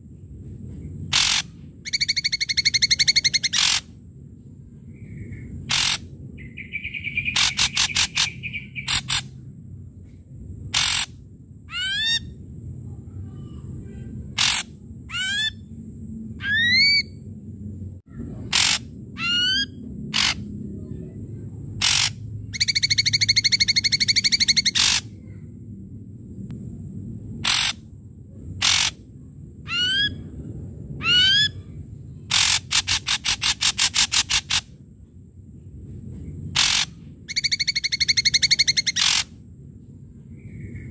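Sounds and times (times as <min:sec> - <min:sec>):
bird buzzing rattle: 0:01.1 - 0:03.9, 0:05.6 - 0:06.1, 0:07.2 - 0:09.3, 0:10.7 - 0:11.2, 0:14.3 - 0:14.8, 0:21.7 - 0:25.1, 0:27.4 - 0:27.8, 0:28.6 - 0:29.0, 0:32.3 - 0:34.7, 0:36.5 - 0:39.3
bird harsh calls: 0:01.1 - 0:04.0, 0:04.9 - 0:09.4, 0:10.7 - 0:11.1, 0:11.7 - 0:12.4, 0:14.2 - 0:15.7, 0:16.4 - 0:17.2, 0:18.3 - 0:20.6, 0:21.7 - 0:25.4, 0:27.4 - 0:27.8, 0:28.6 - 0:29.1, 0:29.7 - 0:30.3, 0:31.0 - 0:34.8, 0:36.5 - 0:39.4
bird whistled phrases: 0:01.2 - 0:03.8, 0:05.1 - 0:09.2, 0:16.4 - 0:17.2, 0:21.8 - 0:25.1, 0:31.0 - 0:31.6, 0:36.6 - 0:39.2.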